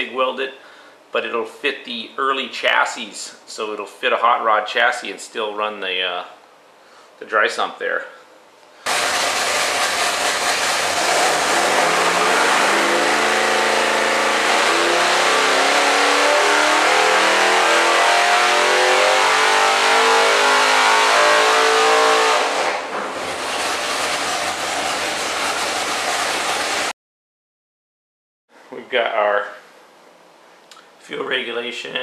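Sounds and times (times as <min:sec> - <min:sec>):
engine revving on dynamometer: 0:08.9 - 0:26.9.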